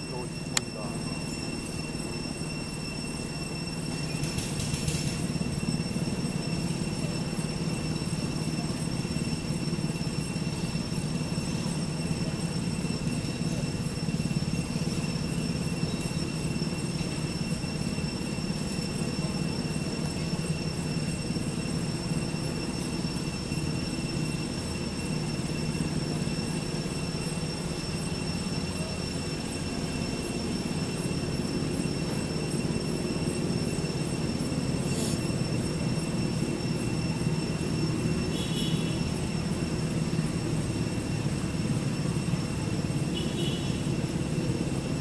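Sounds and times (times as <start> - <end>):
high-pitched whine: 0.0 - 45.0.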